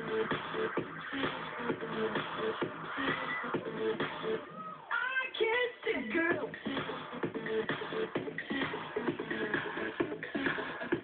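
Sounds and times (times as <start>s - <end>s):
pop music from a radio: 0.0s - 11.0s
high singing voice: 4.4s - 7.0s.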